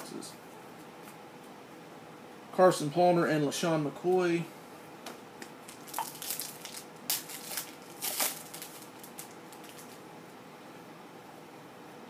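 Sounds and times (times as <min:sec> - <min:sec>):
wrapper crinkling as torn open: 0:05.6 - 0:10.0.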